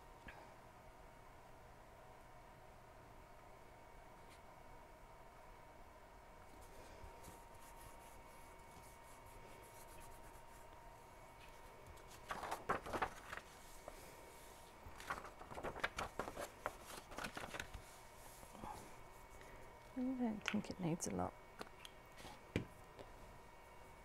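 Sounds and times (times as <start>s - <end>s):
paper rustling and crackling: 11.4s - 18.8s.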